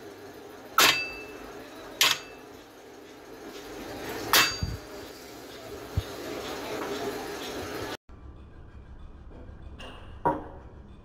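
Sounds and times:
hammer clanking on steel rim: 4.3s - 4.8s.

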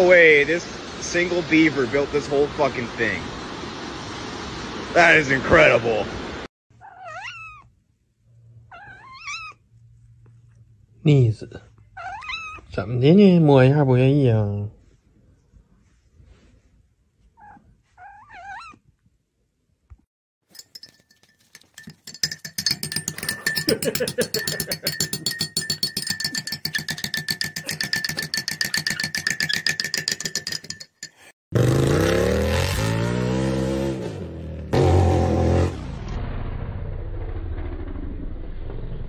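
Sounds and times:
pet squeaky whines: 6.8s - 7.7s, 8.7s - 9.6s, 12.0s - 12.7s, 17.4s - 18.8s
spoon clinking in ceramic mug: 20.5s - 31.3s
dirt bike engine revving: 31.5s - 35.9s.

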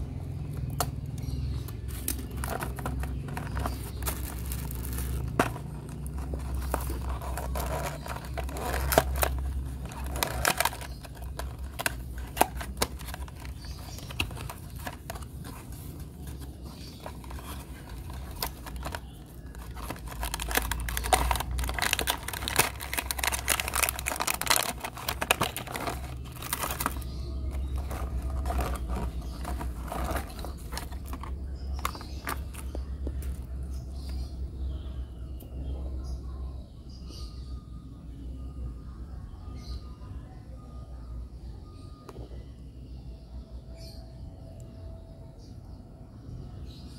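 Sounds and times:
packaging crinkling and rustling: 0.0s - 34.3s.

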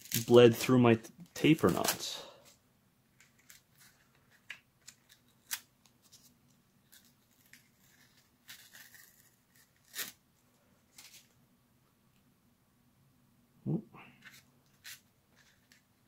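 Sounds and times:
masking tape ripping: 6.9s - 10.2s.

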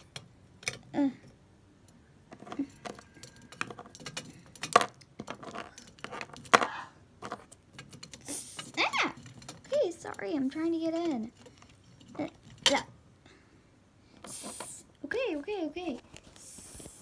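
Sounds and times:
plastic toys clattering: 2.3s - 13.0s.

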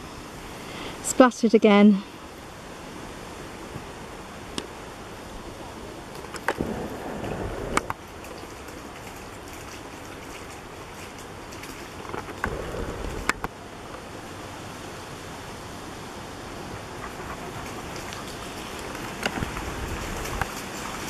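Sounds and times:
steady background hiss: 0.0s - 21.0s
dog splashing through mud: 6.4s - 13.4s, 16.7s - 21.0s.

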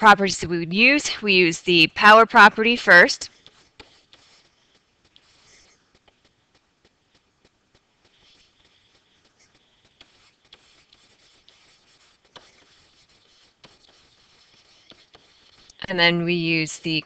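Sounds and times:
stylus scratching and tapping: 0.0s - 17.0s.

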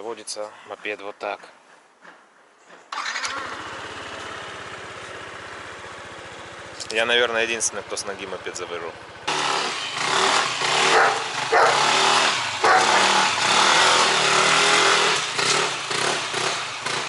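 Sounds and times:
scooter engine revving: 3.0s - 17.0s.

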